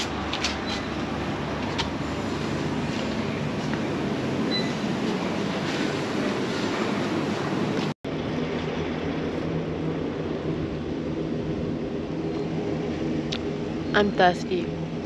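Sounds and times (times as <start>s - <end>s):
mechanical drone: 0.0s - 15.0s.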